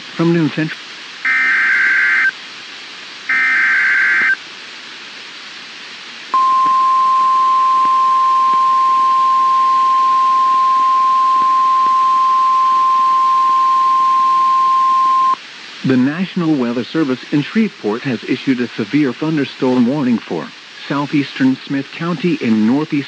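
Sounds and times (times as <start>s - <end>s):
buzzy digital data tones: 1.3s - 2.3s, 3.3s - 4.4s
steady warning alarm tone: 1.3s - 2.3s, 3.3s - 4.4s, 6.4s - 15.4s
hiss: 4.2s - 6.4s, 15.4s - 23.0s.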